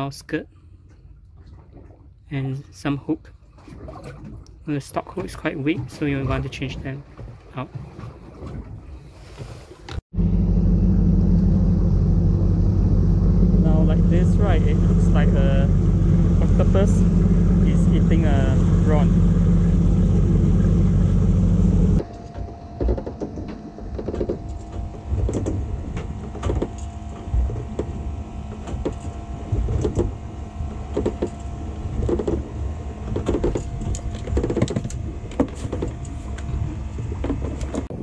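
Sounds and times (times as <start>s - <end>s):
motorboat engine running: 10.1s - 38.0s.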